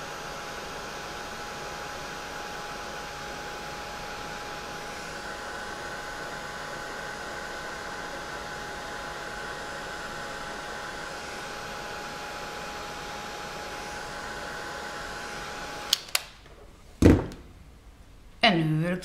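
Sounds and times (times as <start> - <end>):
heat gun blowing air with whine: 0.0 - 16.3.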